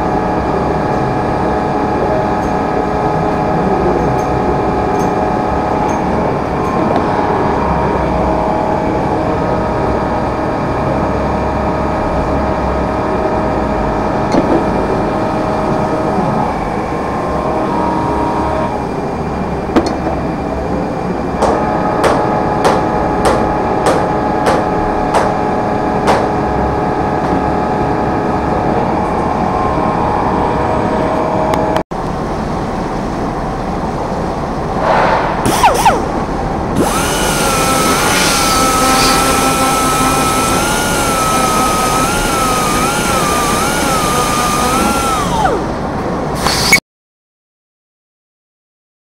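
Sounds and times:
workshop hum: 0.0s - 46.8s
rotary grinder whining on steel: 35.5s - 46.8s.

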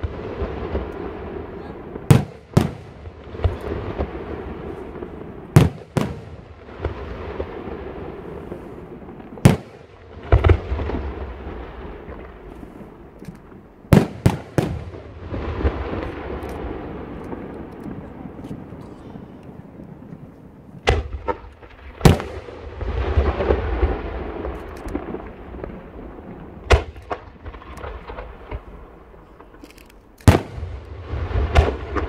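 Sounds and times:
firework bangs: 0.0s - 32.0s.

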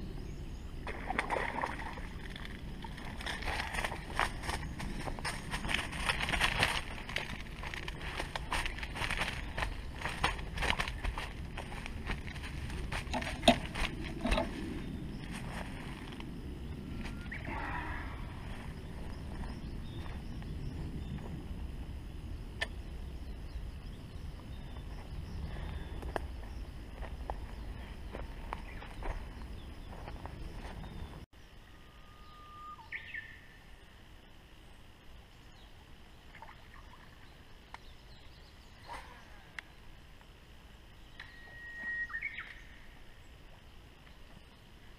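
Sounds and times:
wind rumble on microphone: 0.0s - 31.3s
bird calling: 16.8s - 20.3s, 30.8s - 33.5s, 41.1s - 42.9s.

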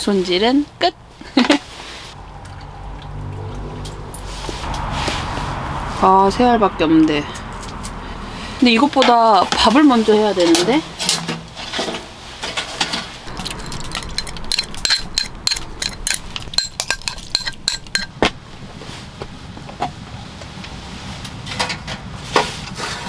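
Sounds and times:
utensil clinking on glass container: 13.3s - 18.3s.

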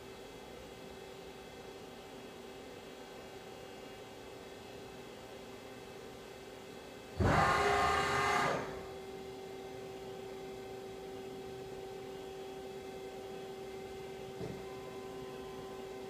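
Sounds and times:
steady machine hum: 0.0s - 16.0s
servo whine and mechanical rush: 7.2s - 8.8s.

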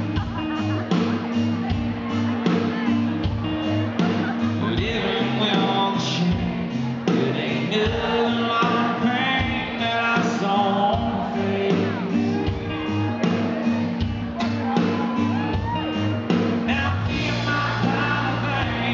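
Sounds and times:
acoustic guitar: 0.0s - 18.9s
bass: 0.0s - 18.9s
country band playing: 0.0s - 18.9s
steady drum beat: 0.0s - 18.9s
man singing: 4.2s - 13.5s, 16.6s - 18.9s.

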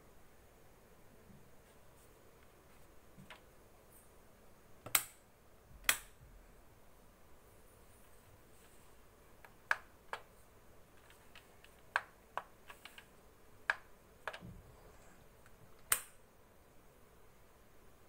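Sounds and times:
sharp clicks and taps: 9.4s - 10.3s, 11.0s - 14.6s.

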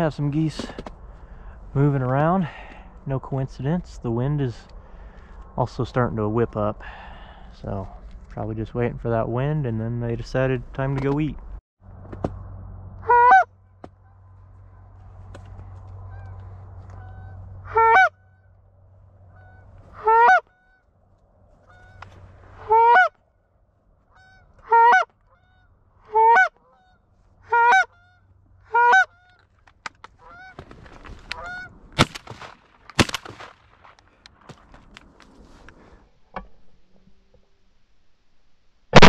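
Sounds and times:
goose call honks: 13.0s - 13.5s, 16.0s - 18.5s, 19.3s - 20.8s, 21.6s - 23.2s, 24.1s - 29.4s.

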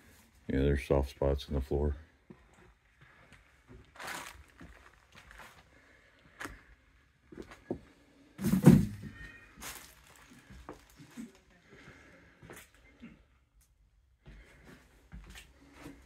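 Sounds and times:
footsteps on debris: 3.0s - 5.7s, 9.6s - 11.2s.

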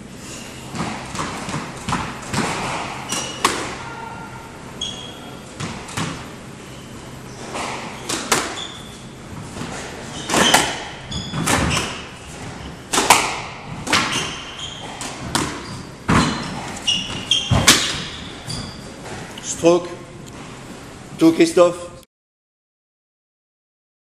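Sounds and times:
squash ball hits: 0.7s - 4.1s, 4.9s - 6.4s, 7.4s - 18.3s
shoes squeaking on wooden floor: 0.7s - 12.9s, 13.7s - 19.6s.

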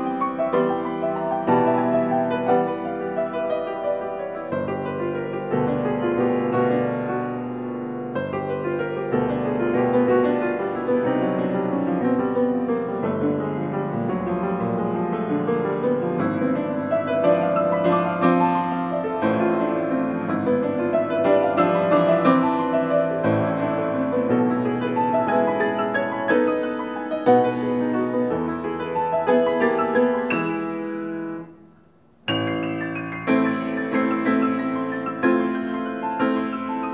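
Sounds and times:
grand piano playing: 0.0s - 36.9s.

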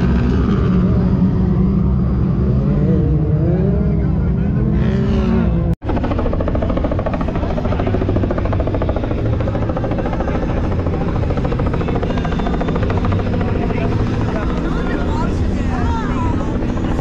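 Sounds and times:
helicopter rotor chopping: 5.5s - 17.0s.

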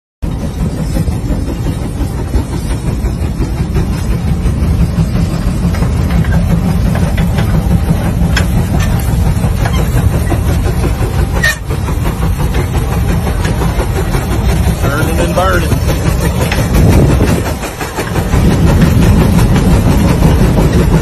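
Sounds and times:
steam traction engine rumbling: 0.2s - 21.0s
plow clicks and knocks: 5.2s - 21.0s.

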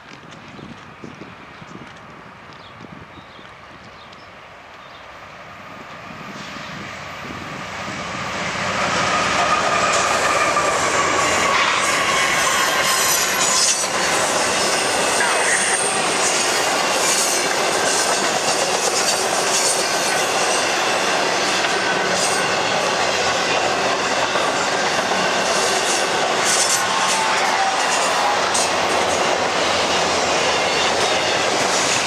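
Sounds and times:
freight train rolling: 0.0s - 32.0s
high-pitched wheel squeals: 9.0s - 17.4s.

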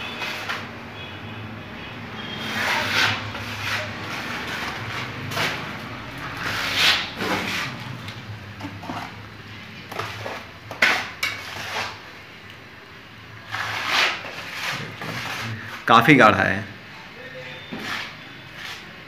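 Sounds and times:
trowel scraping plaster: 0.0s - 0.7s, 2.2s - 9.3s, 9.9s - 12.1s, 13.4s - 15.9s, 17.6s - 19.0s.

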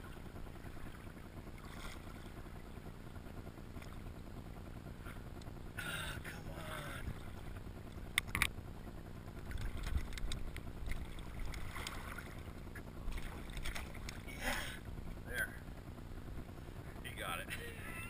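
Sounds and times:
low rumble: 0.0s - 18.0s
water sloshing against kayak hull: 0.1s - 2.4s, 9.4s - 14.7s
sharp clicks: 7.9s - 8.6s, 9.5s - 11.6s.

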